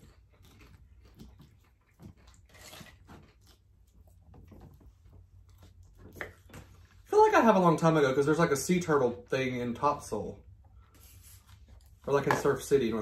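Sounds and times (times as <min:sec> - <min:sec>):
faint chewing: 0:00.0 - 0:07.1.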